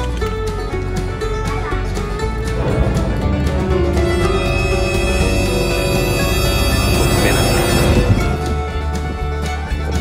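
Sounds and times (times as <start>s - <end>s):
music with long held notes: 0.0s - 10.0s
steady low bass: 2.0s - 9.4s.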